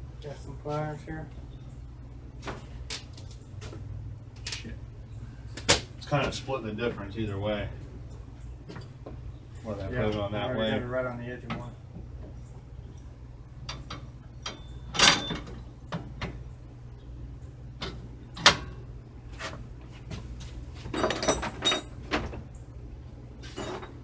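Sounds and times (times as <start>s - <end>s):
steady low hum: 0.0s - 24.0s
metal parts clanking: 20.9s - 22.0s.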